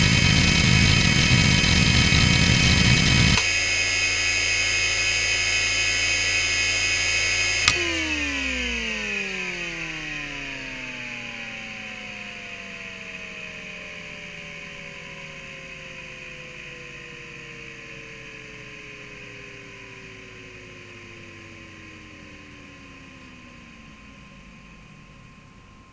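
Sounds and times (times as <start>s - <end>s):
hard drive spinning down: 0.0s - 25.9s
hard drive whining: 0.0s - 25.9s
hard drive click: 7.7s - 8.0s.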